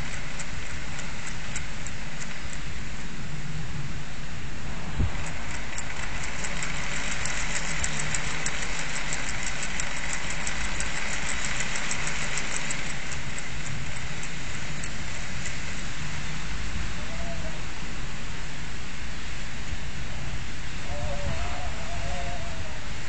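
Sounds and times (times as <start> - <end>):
fast light ticking of a propeller: 0.0 - 3.6, 4.8 - 16.8
wind rushing at a window: 0.0 - 23.0.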